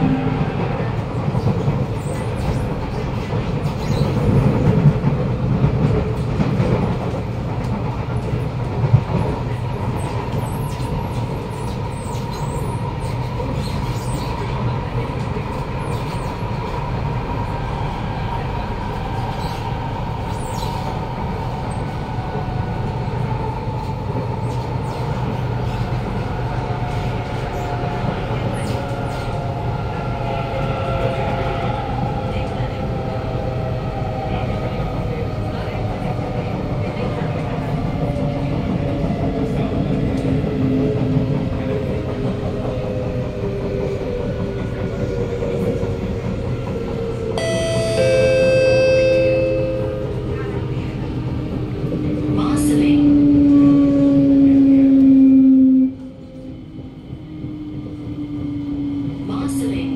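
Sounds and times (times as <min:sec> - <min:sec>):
train rumble inside carriage: 0:00.0 - 0:59.9
onboard chime: 0:47.4 - 0:50.2.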